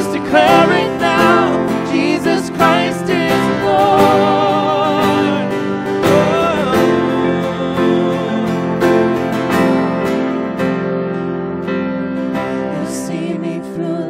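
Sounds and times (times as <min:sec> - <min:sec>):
man and woman singing: 0:00.0 - 0:09.3, 0:12.7 - 0:14.0
strummed acoustic guitar: 0:00.0 - 0:13.1.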